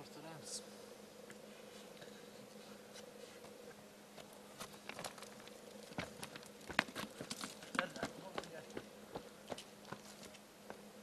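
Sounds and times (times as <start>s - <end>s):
footsteps crunching on gravel: 4.2s - 10.4s.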